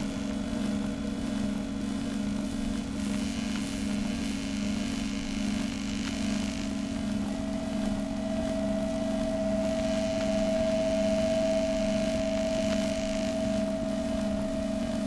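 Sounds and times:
ambient drone music: 7.1s - 15.0s.

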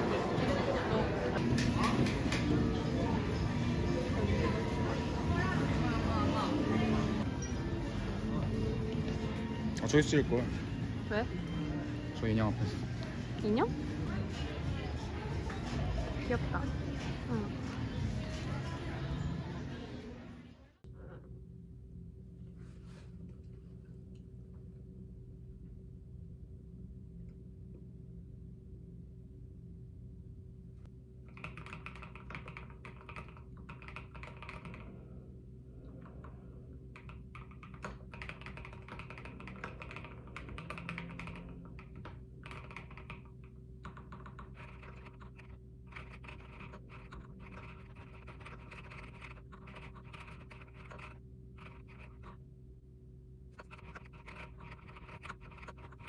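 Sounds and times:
laptop fan hum: 20.9s - 56.0s
mechanical keyboard clacks: 31.3s - 34.8s, 37.0s - 47.7s.

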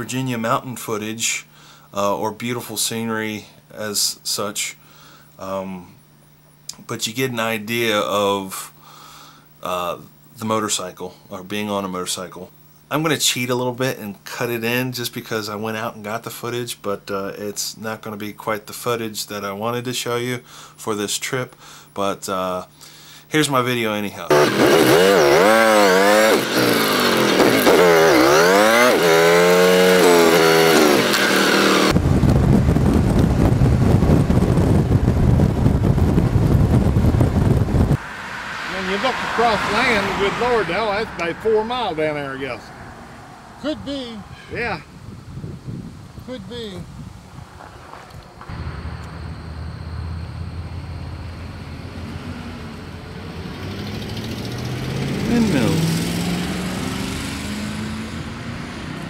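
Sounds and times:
motorcycle engine revving: 24.3s - 32.0s, 48.5s - 59.0s
motorcycle engine running: 24.3s - 37.9s
moving motorcycle rumble: 24.3s - 45.9s, 47.0s - 59.0s
wind buffeting microphone: 31.9s - 42.7s, 43.6s - 51.9s.

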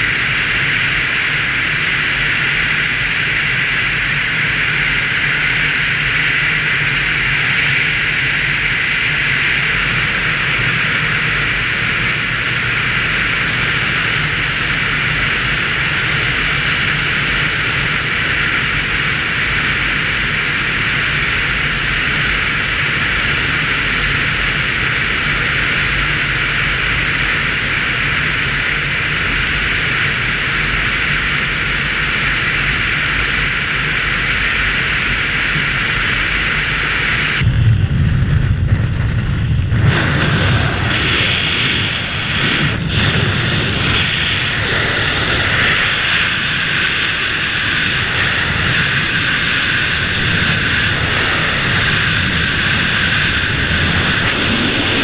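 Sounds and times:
wind buffeting microphone: 37.3s - 55.0s.

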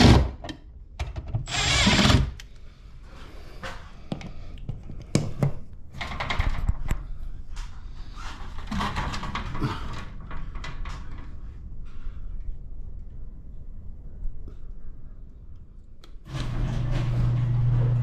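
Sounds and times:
cordless drill: 1.5s - 2.4s.

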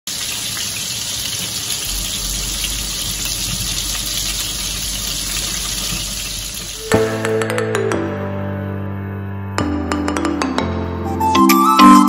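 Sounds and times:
shrimp sizzling in oil: 0.1s - 6.9s.

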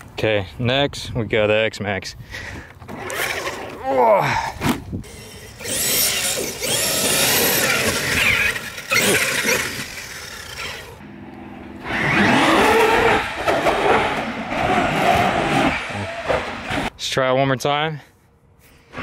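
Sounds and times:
electric motor whine: 5.0s - 14.6s.

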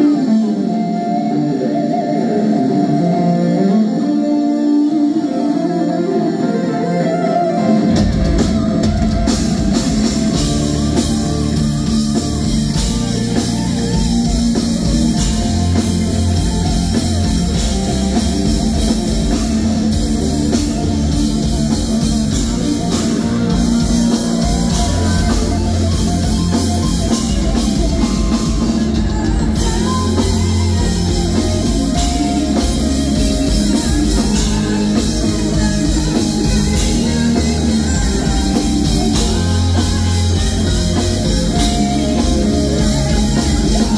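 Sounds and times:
electric guitar lead: 0.0s - 43.9s
heavy rock band playing: 0.0s - 43.9s.

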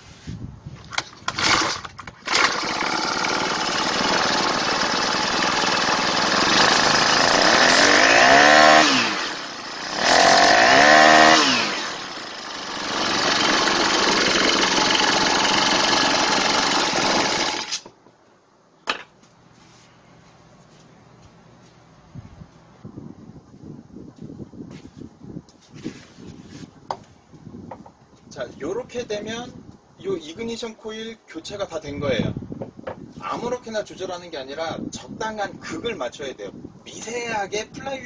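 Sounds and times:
recoil starter pulls: 0.9s - 18.0s
brush cutter engine running: 1.2s - 17.9s.

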